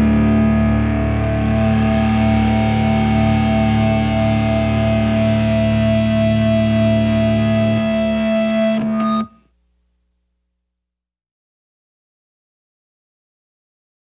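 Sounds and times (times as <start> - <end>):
distorted electric guitar chord: 0.0 - 9.3.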